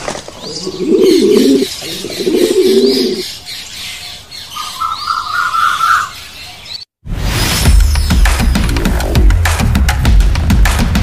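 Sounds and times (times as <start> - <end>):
small birds chirping: 0.0 - 7.0
pigeon cooing: 0.4 - 3.3
high pulsing bird call: 0.5 - 3.3, 4.6 - 6.9.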